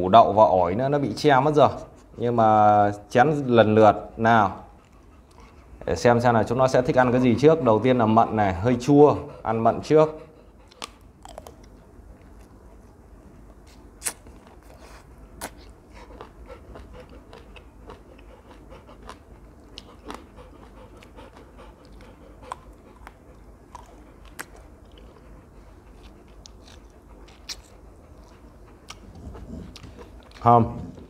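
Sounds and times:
person chewing a plum: 10.6 - 12.6, 13.6 - 31.0.

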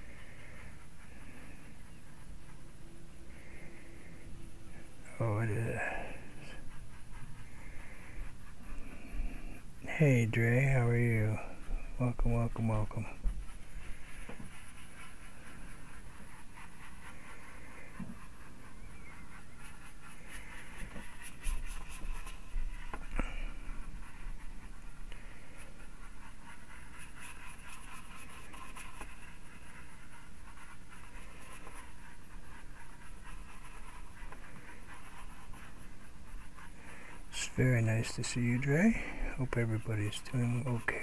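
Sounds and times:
brush scrubbing paint on board: 0.0 - 41.0
brush tapping: 11.1 - 41.0.

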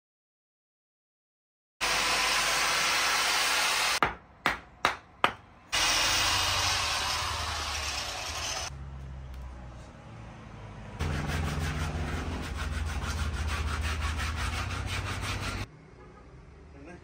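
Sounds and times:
hatchet chopping wood: 4.0 - 5.5.

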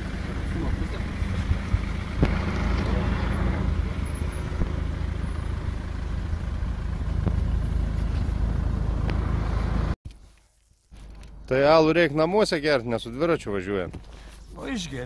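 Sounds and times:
motor vehicle engine rumbling: 0.0 - 10.0.

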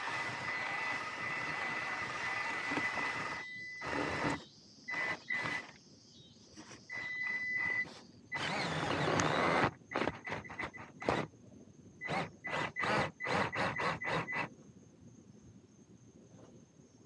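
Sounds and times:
electric motor whining: 0.0 - 5.7, 6.9 - 11.3, 12.0 - 14.5
rc car pushing through grass: 0.0 - 5.8, 6.6 - 11.3, 12.0 - 14.5.

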